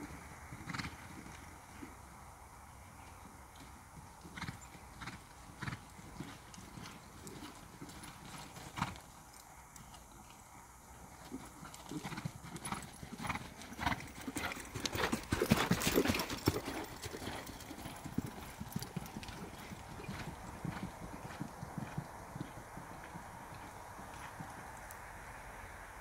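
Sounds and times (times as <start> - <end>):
horse hoofbeats on sand: 3.5 - 9.0, 11.2 - 24.9.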